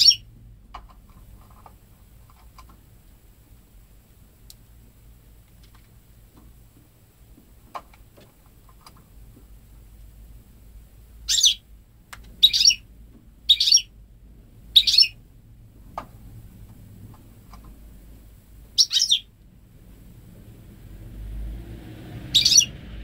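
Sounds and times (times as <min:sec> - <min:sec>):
finch singing: 0:00.0 - 0:00.3, 0:11.2 - 0:11.7, 0:12.4 - 0:14.0, 0:14.7 - 0:15.2, 0:18.7 - 0:19.4, 0:22.3 - 0:22.8.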